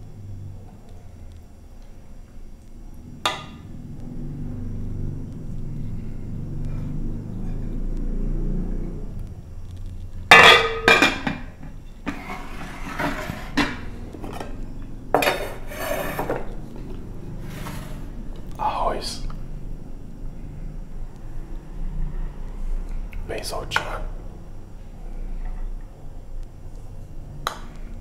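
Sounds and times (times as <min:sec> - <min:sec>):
low rumble: 0:02.5 - 0:10.3
ladle and pots clanking: 0:10.3 - 0:14.5.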